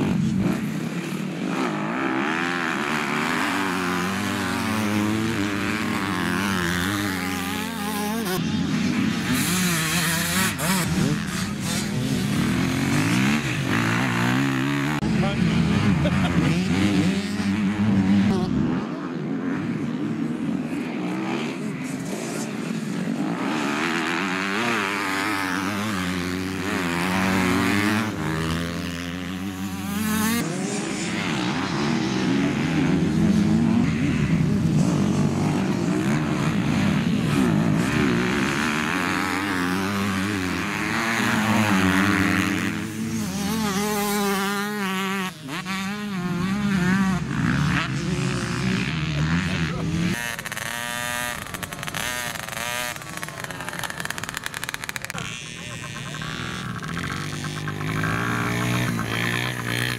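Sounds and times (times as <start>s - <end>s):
dirt bike engines revving: 0.0s - 59.9s.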